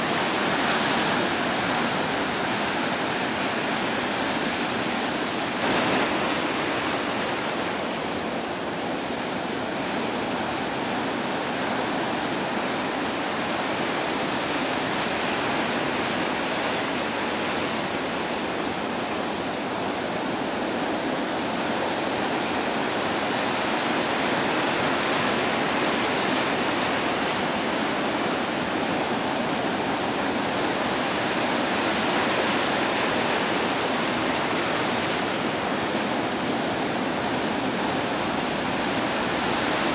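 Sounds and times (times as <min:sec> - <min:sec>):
ocean surf breaking: 0:00.0 - 0:19.4, 0:23.0 - 0:39.9.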